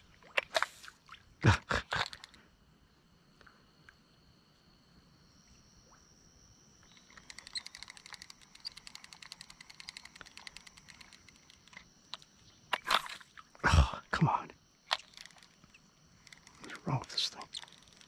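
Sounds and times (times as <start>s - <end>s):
fishing reel clicking: 7.0s - 11.8s, 14.9s - 18.0s.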